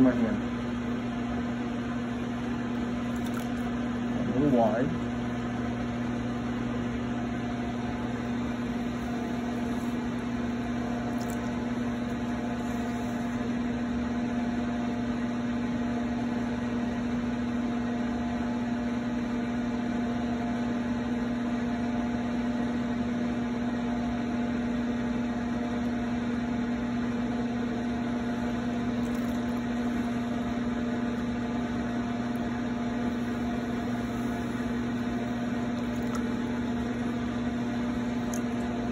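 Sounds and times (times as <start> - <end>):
electric motor hum: 0.0 - 15.5, 26.1 - 38.9.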